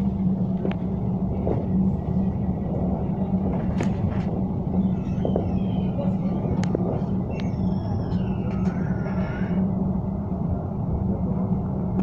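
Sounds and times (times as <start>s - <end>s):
tram humming and rumbling: 0.0s - 12.0s.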